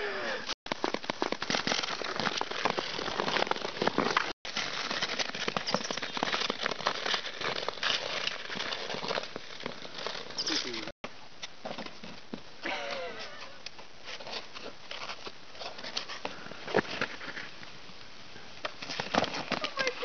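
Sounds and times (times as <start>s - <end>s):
ice skates scraping ice: 1.3s - 10.9s.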